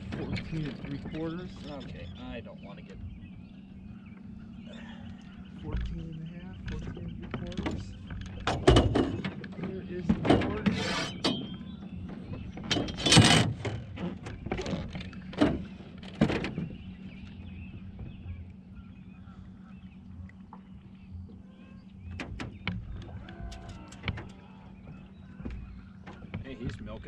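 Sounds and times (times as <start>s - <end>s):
knocks and clatter in boat: 0.0s - 27.0s
electric trolling motor hum: 10.6s - 26.9s.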